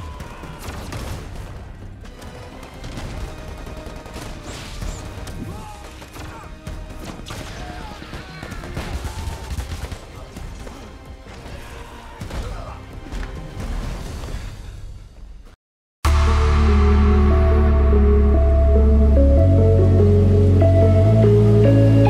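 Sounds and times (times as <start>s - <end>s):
low rumble: 16.1s - 21.5s
music score: 16.1s - 22.0s.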